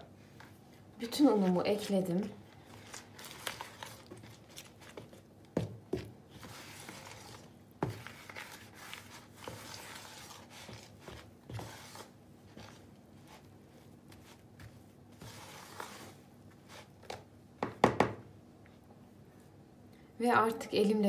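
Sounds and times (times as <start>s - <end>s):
spoon scraping dough in bowl: 5.9s - 13.5s, 14.1s - 17.0s.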